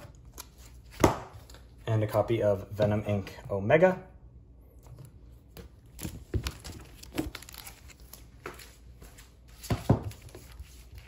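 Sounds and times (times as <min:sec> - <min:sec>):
plastic sleeves crinkling: 0:05.6 - 0:11.0.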